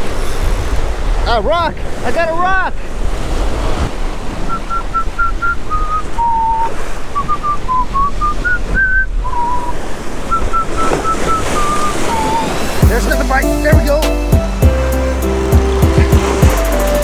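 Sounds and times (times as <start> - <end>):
wind noise on microphone: 0.0 - 2.0, 2.8 - 13.0
surf washing against rocks: 0.0 - 17.0
person whistling a slow tune: 4.5 - 12.6.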